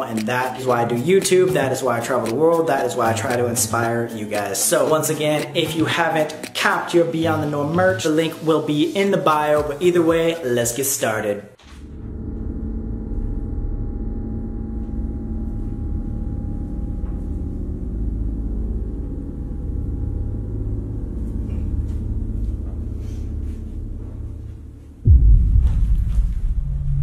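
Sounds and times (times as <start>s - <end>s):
eerie ambient drone music: 11.6s - 27.0s.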